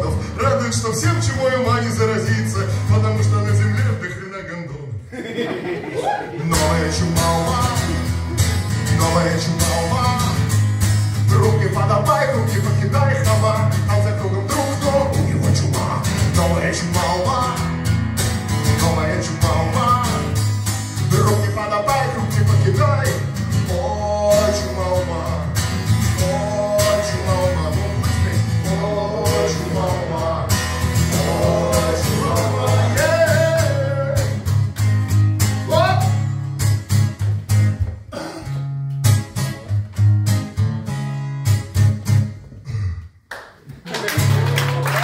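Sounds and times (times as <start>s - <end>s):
man singing: 0.0s - 4.8s, 6.3s - 34.6s, 35.7s - 36.2s
acoustic guitar strumming: 6.4s - 42.5s.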